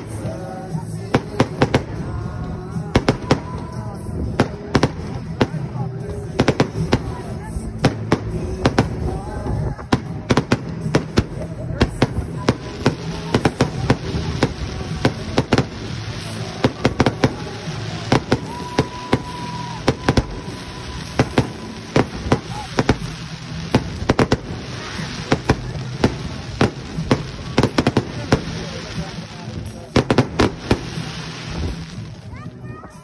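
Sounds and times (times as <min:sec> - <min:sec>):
background voices: 0:00.0 - 0:33.0
fireworks cracking and popping: 0:00.0 - 0:33.0
firework whistle: 0:16.2 - 0:25.5.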